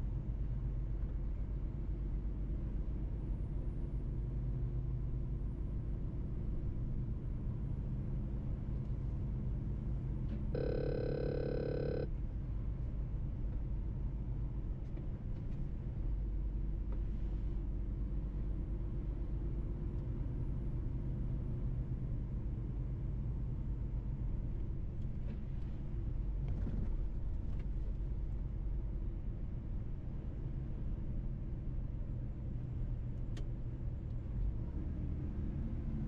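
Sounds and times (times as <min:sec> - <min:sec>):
held multi-pitch tone: 0:10.6 - 0:12.1.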